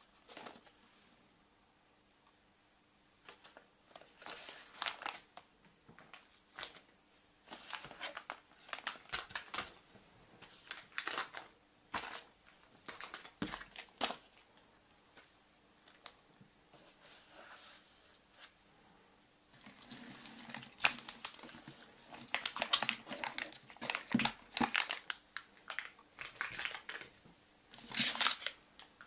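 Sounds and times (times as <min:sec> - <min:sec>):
wrapper crinkling and rustling: 0:03.2 - 0:14.6, 0:19.5 - 0:29.0.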